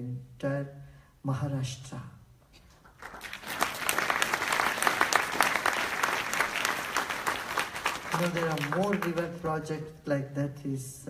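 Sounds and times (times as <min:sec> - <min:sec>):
audience applauding: 0:02.9 - 0:09.4.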